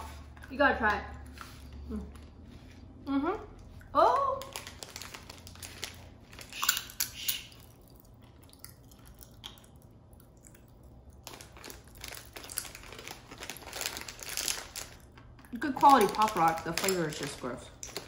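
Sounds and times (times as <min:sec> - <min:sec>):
popping candy crackling: 0:04.0 - 0:07.4, 0:11.1 - 0:18.0.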